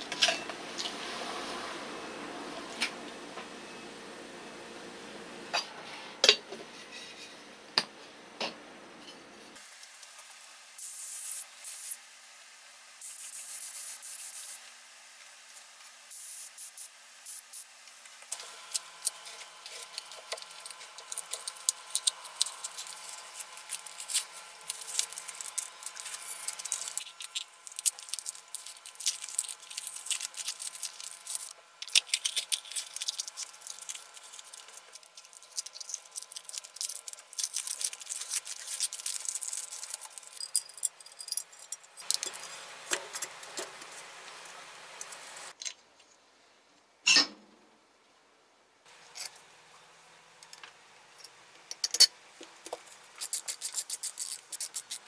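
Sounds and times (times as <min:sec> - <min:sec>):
spray gun hissing: 0:16.1 - 0:17.7
masking tape crackling peeled off: 0:18.0 - 0:40.4, 0:52.9 - 0:55.0.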